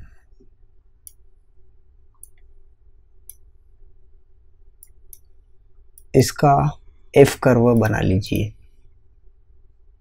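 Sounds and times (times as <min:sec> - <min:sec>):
faint steady hum: 0:00.0 - 0:10.0
computer mouse clicks: 0:00.4 - 0:01.2, 0:02.2 - 0:02.5, 0:04.8 - 0:05.3, 0:07.7 - 0:08.5.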